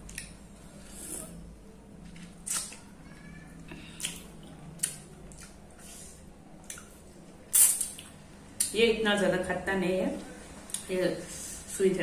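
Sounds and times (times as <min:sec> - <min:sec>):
wet lip smacks and sucking: 0:02.4 - 0:02.8, 0:07.5 - 0:08.1.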